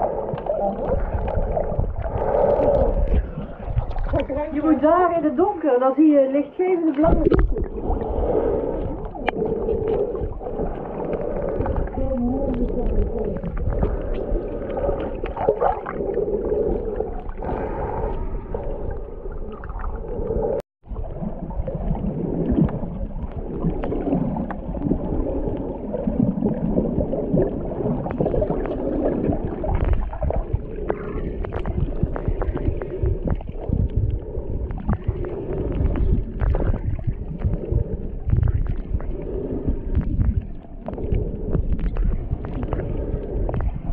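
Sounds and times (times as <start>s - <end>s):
underwater sloshing and gurgling: 0.0s - 43.9s.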